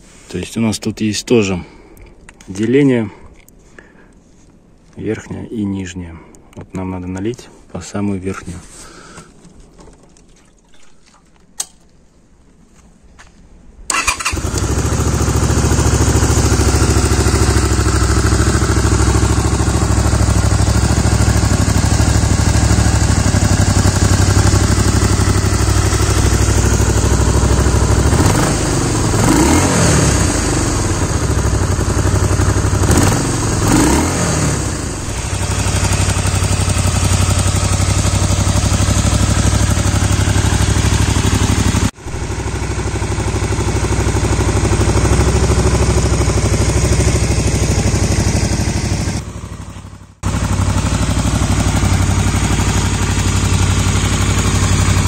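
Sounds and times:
motorcycle engine idling: 0:13.9 - 0:55.0.

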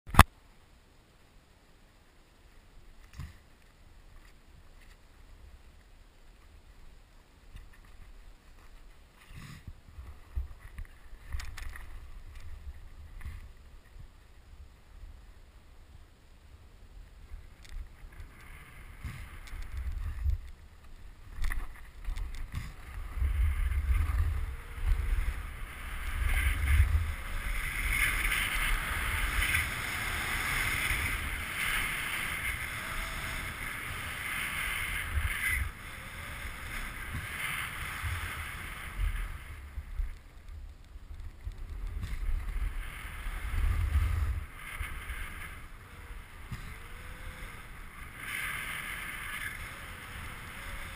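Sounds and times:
wind buffeting microphone: 0:17.2 - 0:48.2
skis hissing over snow: 0:20.9 - 0:40.0.

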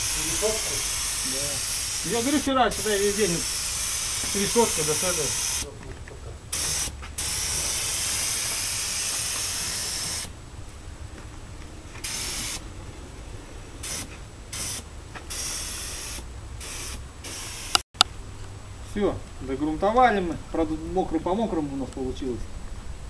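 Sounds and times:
spray gun hissing: 0:00.0 - 0:05.7, 0:06.5 - 0:10.3, 0:12.0 - 0:12.7, 0:13.6 - 0:17.8.

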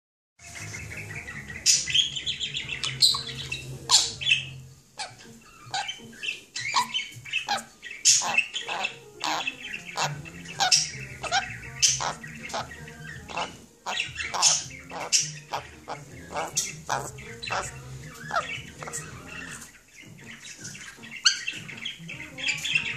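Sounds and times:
parrot squawks and chirps: 0:00.4 - 0:22.9.

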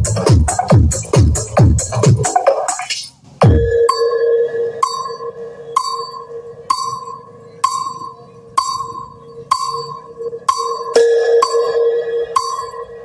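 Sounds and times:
bell-like tone ringing: 0:03.5 - 0:13.0.

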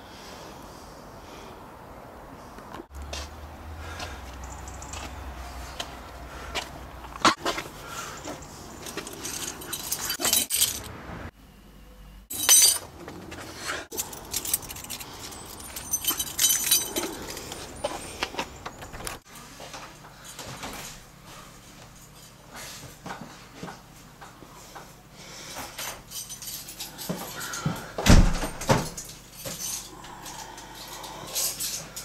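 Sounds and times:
keys jangling: 0:08.8 - 0:10.9, 0:12.3 - 0:12.8, 0:13.9 - 0:18.0, 0:25.7 - 0:32.0.

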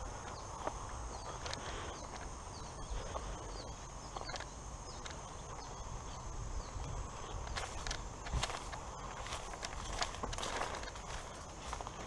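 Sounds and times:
footsteps through grass: 0:04.9 - 0:12.0.

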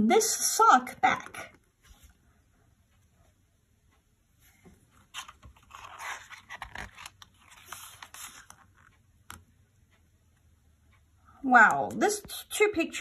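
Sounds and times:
book pages turning: 0:04.5 - 0:09.4.

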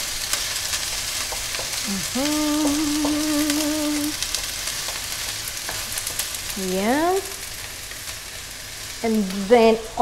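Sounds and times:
garlic and onions sizzling in oil: 0:00.0 - 0:10.0
woman humming: 0:01.8 - 0:04.2.

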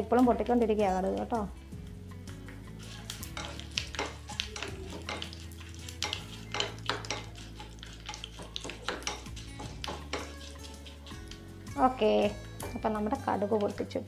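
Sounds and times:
seeds popping in hot oil: 0:00.0 - 0:01.6, 0:02.3 - 0:14.0
metal spoon clinking on pan: 0:03.2 - 0:13.8.

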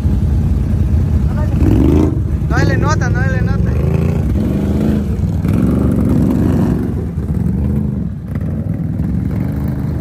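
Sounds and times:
other quad engines running: 0:00.0 - 0:10.0
atv engine revving in mud: 0:01.5 - 0:02.4, 0:03.5 - 0:10.0.

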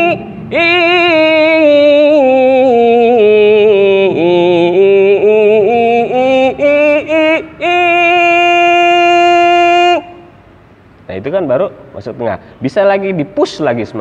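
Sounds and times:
man singing vocal exercise: 0:00.0 - 0:10.4.

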